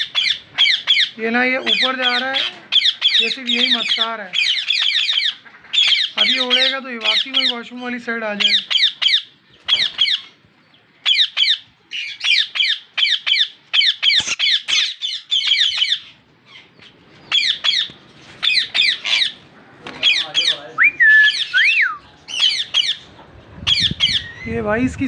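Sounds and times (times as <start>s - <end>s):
parakeets squawking: 0.0s - 25.0s.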